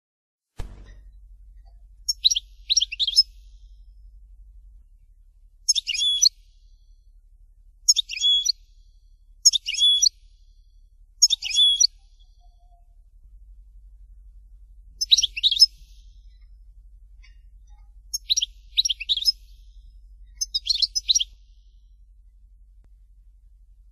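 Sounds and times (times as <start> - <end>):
goldfinch twittering song: 2.0 - 3.6, 5.7 - 6.4, 7.9 - 8.6, 9.4 - 10.2, 11.2 - 12.5, 15.0 - 16.5, 17.2 - 21.5.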